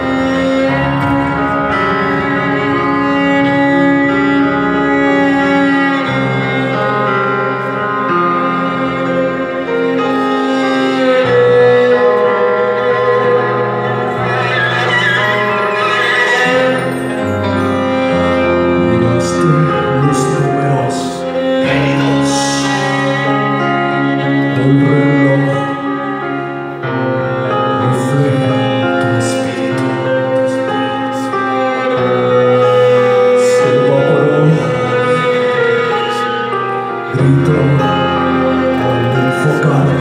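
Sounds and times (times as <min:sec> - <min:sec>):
metal band playing live: 0:00.0 - 0:09.1.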